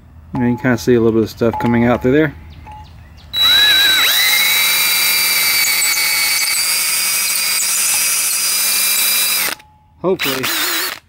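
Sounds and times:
power drill whining: 0:03.4 - 0:09.6, 0:10.2 - 0:11.0.

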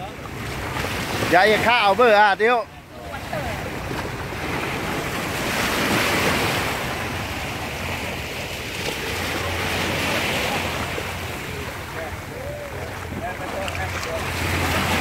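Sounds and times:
small waves washing onto sand: 0:00.0 - 0:15.0.

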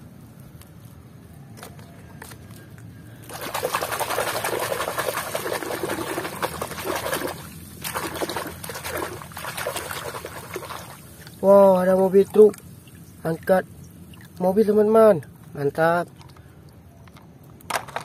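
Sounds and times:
muddy water splashing and sloshing: 0:03.1 - 0:14.7
plastic toy scrubbed in water: 0:03.3 - 0:11.0.

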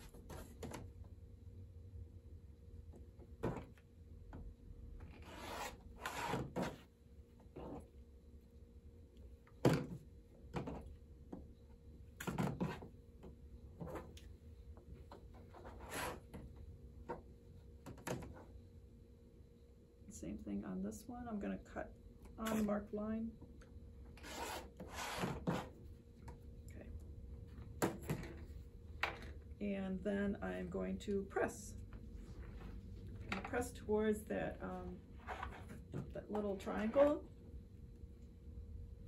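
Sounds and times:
rotary cutter scraping fabric: 0:05.1 - 0:06.8, 0:15.6 - 0:16.4, 0:24.2 - 0:25.8.

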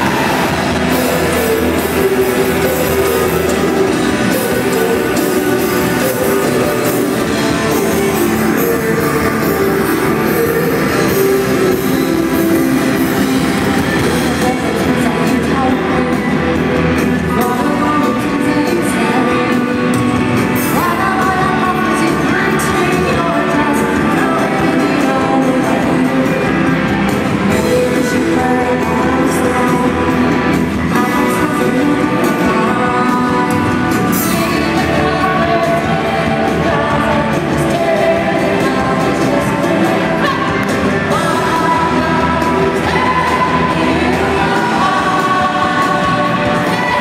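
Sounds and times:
lead vocals singing: 0:00.0 - 0:47.0
rock band playing live: 0:00.0 - 0:47.0.

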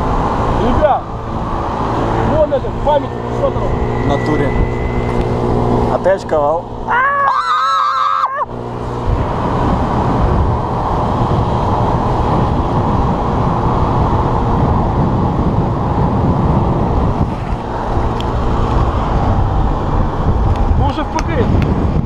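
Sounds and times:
wind rush and road noise: 0:00.0 - 0:22.0
wavering vocal cry: 0:06.9 - 0:08.5.

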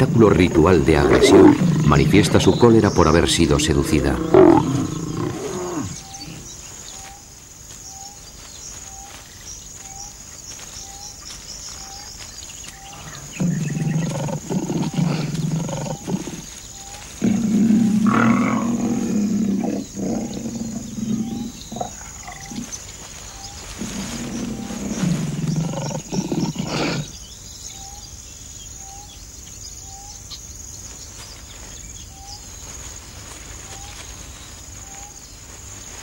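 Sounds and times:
lions growling: 0:00.0 - 0:06.5, 0:12.9 - 0:16.5, 0:17.2 - 0:22.8, 0:23.8 - 0:27.1.

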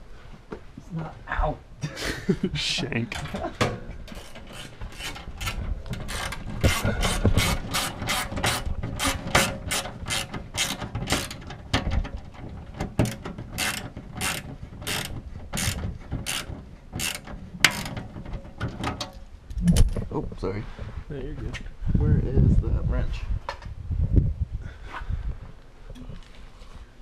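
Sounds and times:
ratchet wrench clicking: 0:13.0 - 0:18.0.

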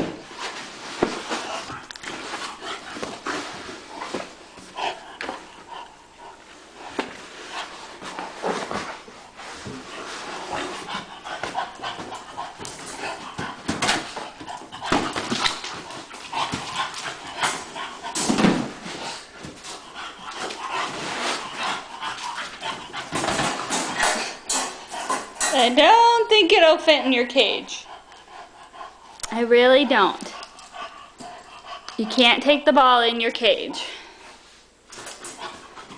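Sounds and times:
dog breathing hard: 0:27.8 - 0:29.2, 0:30.3 - 0:32.0.

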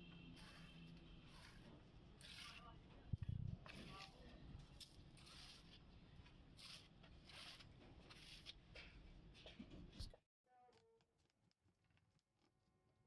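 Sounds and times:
hand scraping plaster edge: 0:00.3 - 0:05.9, 0:06.5 - 0:08.6.

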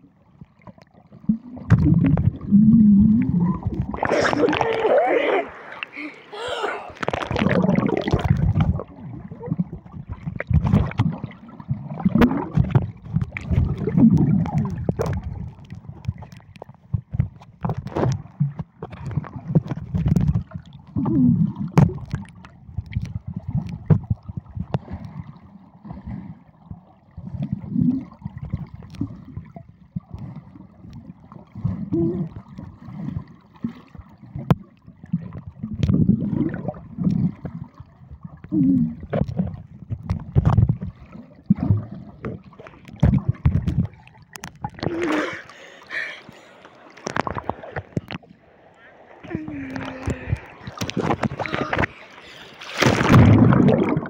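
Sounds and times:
water gurgling: 0:00.0 - 0:54.0
underwater rumbling swells: 0:01.1 - 0:06.0, 0:06.9 - 0:16.2, 0:46.8 - 0:54.0.

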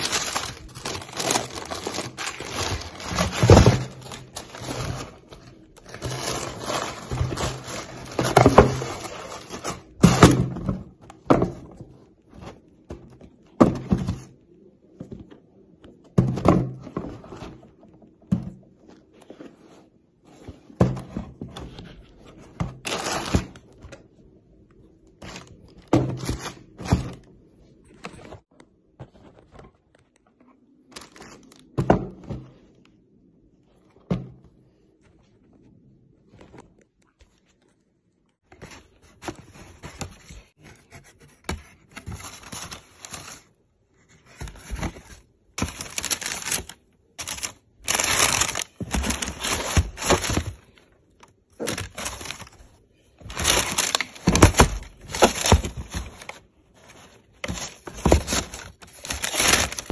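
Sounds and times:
tissue paper rustling: 0:00.0 - 0:09.9, 0:44.4 - 0:50.8, 0:53.2 - 0:59.9.

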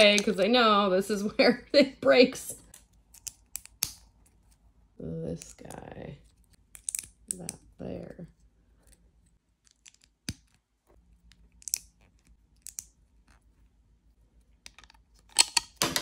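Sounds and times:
plastic bricks clicking: 0:14.6 - 0:16.0.

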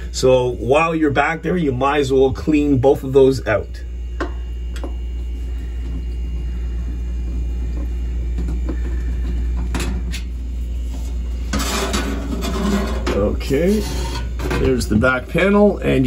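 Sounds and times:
steady low hum: 0:00.0 - 0:16.0
metal cover scraping rustle: 0:11.0 - 0:14.8.

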